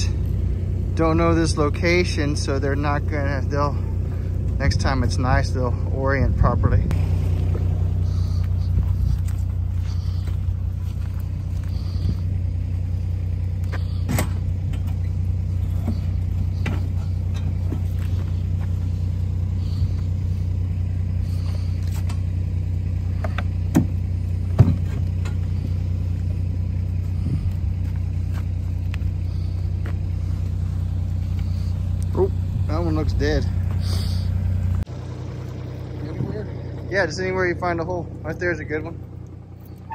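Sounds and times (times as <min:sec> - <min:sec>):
loader diesel engine running: 0:00.0 - 0:39.9
knocks and clunks: 0:14.0 - 0:18.2, 0:23.2 - 0:25.8.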